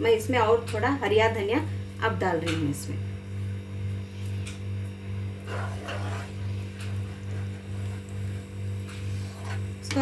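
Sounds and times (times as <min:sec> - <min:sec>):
low pulsing hum: 0:00.0 - 0:10.0
spoon scraping nonstick pan: 0:05.4 - 0:08.2, 0:08.9 - 0:10.0.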